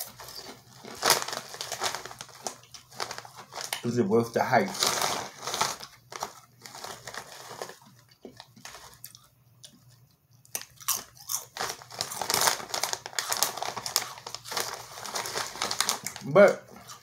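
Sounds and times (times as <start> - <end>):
chip bag rustling: 0.0 - 9.3, 10.6 - 17.0
chips crunched and chewed: 4.7 - 17.0.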